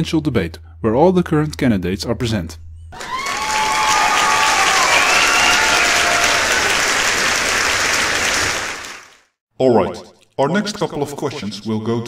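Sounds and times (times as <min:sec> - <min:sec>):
crowd applauding and cheering: 0:03.0 - 0:09.3.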